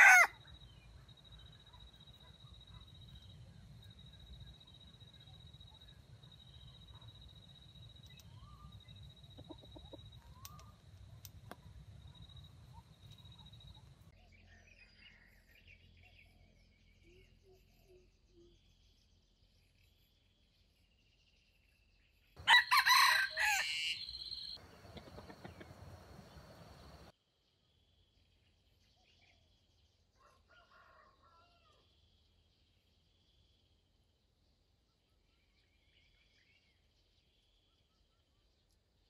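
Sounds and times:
rooster crowing: 0.0 - 0.4, 22.4 - 27.0, 30.2 - 31.8
small chirps: 0.6 - 14.1.

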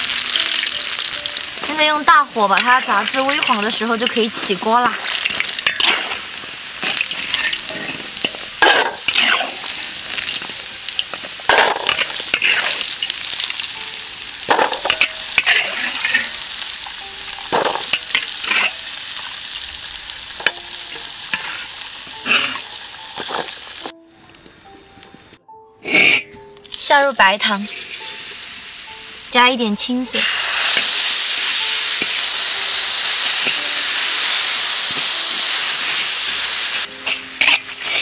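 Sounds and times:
food deep-frying in hot oil: 0.0 - 23.9, 26.7 - 38.0
metal ladle scraping wok: 2.4 - 13.6, 14.5 - 16.6, 17.5 - 19.4, 20.4 - 23.9, 25.8 - 26.9, 34.7 - 38.0.

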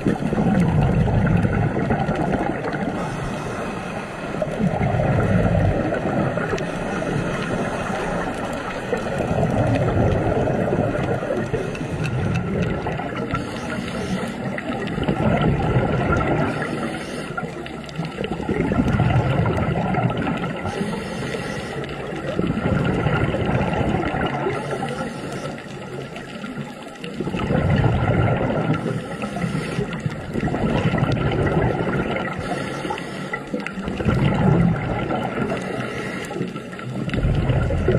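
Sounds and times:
bubbles rumbling underwater: 0.0 - 37.9
diver breathing through regulator: 2.8 - 4.6, 5.4 - 8.8, 13.2 - 14.9, 16.4 - 17.8, 20.6 - 22.2, 24.4 - 26.0, 28.7 - 30.4, 32.2 - 34.4, 35.5 - 37.6.

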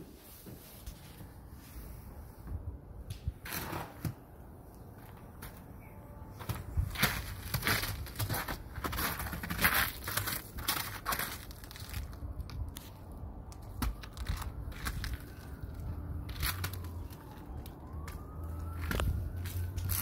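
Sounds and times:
distant siren: 11.8 - 20.0.

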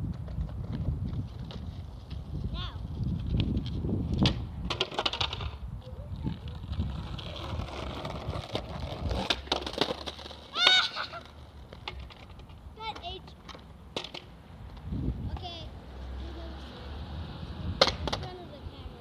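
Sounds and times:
skateboard wheels rolling: 0.0 - 19.0
skateboard clacks: 3.3 - 15.4, 17.8 - 18.4.

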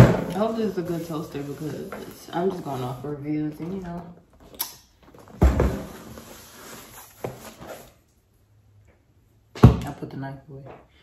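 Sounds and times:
cardboard scraping on counter: 5.7 - 8.0.

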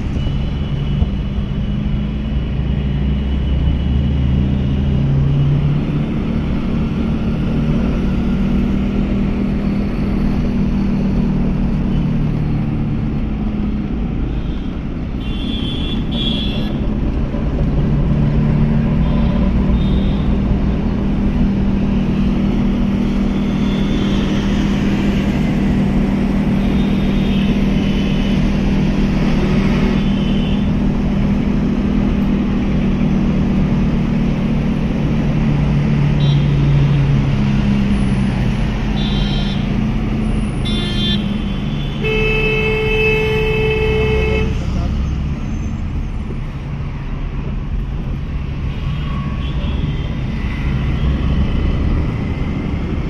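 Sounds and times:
road noise: 0.0 - 53.0
car horn toots: 38.9 - 39.7, 40.6 - 44.6.

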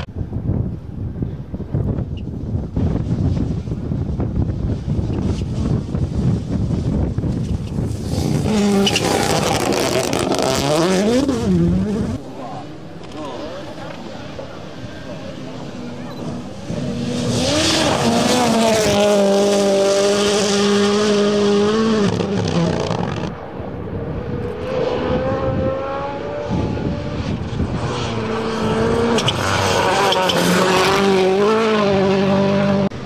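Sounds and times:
rally car engine at high revs: 7.9 - 12.3, 15.1 - 23.3, 24.3 - 33.0.

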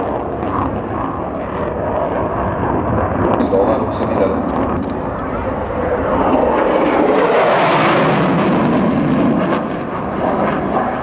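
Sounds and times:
jet fighter rushing jet noise: 3.4 - 9.0.

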